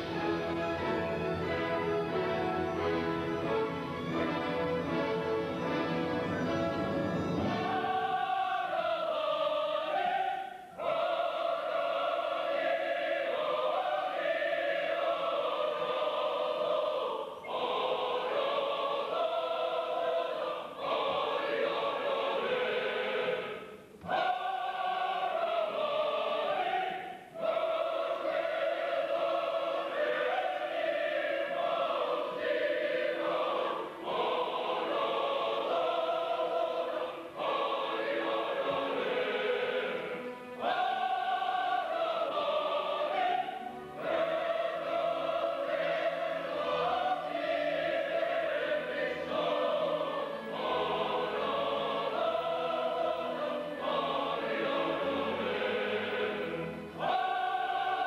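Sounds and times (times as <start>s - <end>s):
orchestra playing: 0.0s - 8.0s
opera chorus singing: 0.0s - 58.0s.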